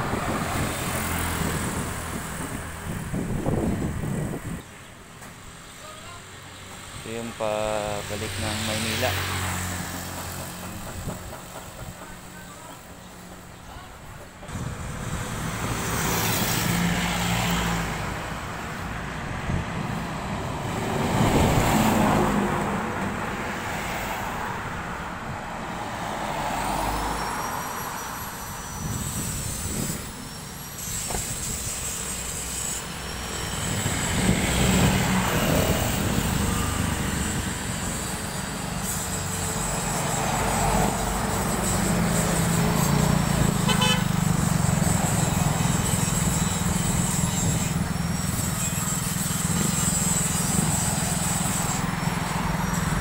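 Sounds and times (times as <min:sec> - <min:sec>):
highway traffic passing: 0:00.0 - 0:53.0
high gliding whistles: 0:26.3 - 0:43.7.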